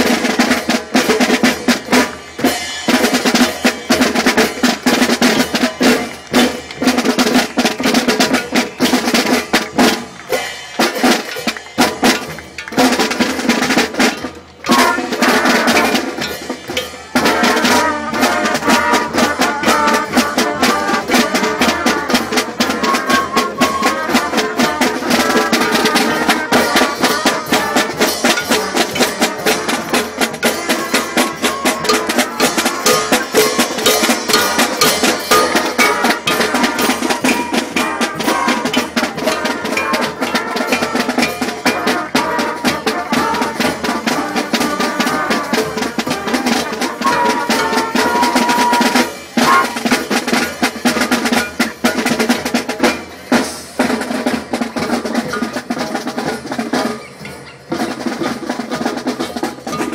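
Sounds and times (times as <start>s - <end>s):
trumpets and trombones: 0.0s - 56.9s
snare and bass drum beat: 0.0s - 59.9s
flutes: 14.7s - 16.0s, 17.1s - 28.8s, 30.4s - 41.0s, 41.6s - 50.0s.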